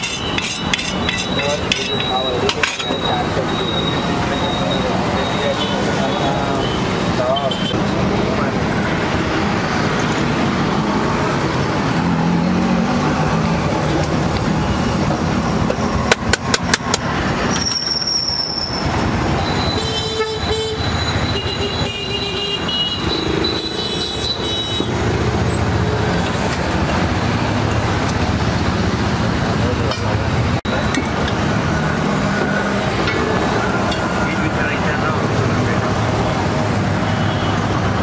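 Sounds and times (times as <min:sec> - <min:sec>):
street traffic noise: 0:00.0 - 0:38.0
vehicle horns: 0:19.4 - 0:25.0.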